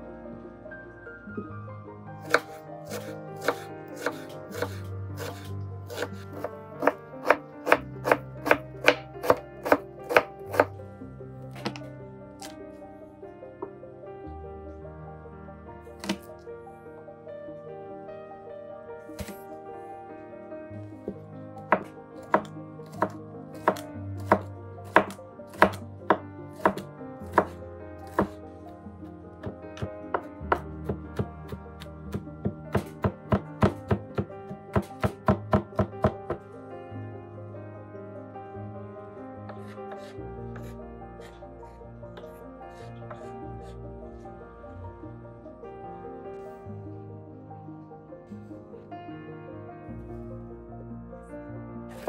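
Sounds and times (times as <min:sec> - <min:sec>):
knife chopping on wooden board: 0:02.2 - 0:10.7, 0:16.0 - 0:16.3, 0:19.2 - 0:19.4, 0:21.7 - 0:28.4, 0:29.4 - 0:36.4, 0:39.5 - 0:40.7.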